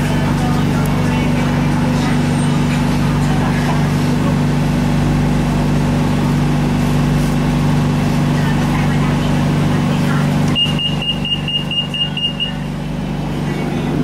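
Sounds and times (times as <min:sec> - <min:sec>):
train motors humming: 0:00.0 - 0:14.0.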